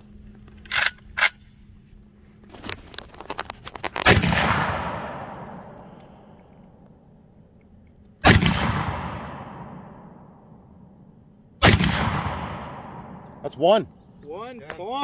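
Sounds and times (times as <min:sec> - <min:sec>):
rifle shot echoing: 0:04.0 - 0:06.3, 0:08.2 - 0:10.5, 0:11.6 - 0:13.4.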